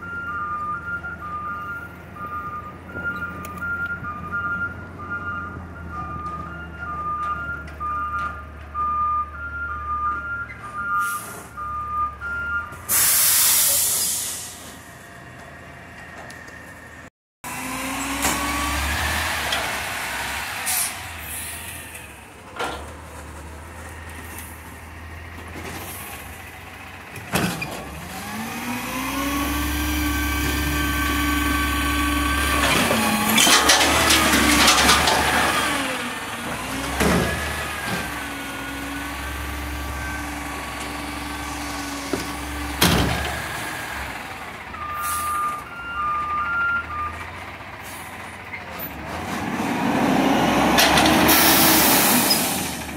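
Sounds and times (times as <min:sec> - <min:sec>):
reversing beeps: 0:00.0 - 0:13.3, 0:39.3 - 0:40.5, 0:44.8 - 0:47.2
garbage truck engine revving: 0:17.4 - 0:52.9
dumpster clanging and rattling: 0:22.4 - 0:23.8, 0:27.1 - 0:28.1, 0:31.5 - 0:44.2.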